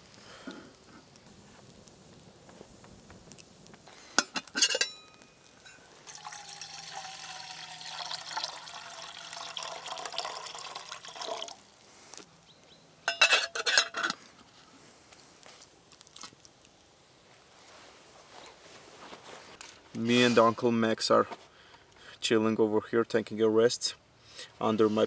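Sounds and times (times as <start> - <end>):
metal kettle lid clinking: 4.2 - 5.0, 13.1 - 14.2
water pouring into metal kettle: 6.0 - 11.7.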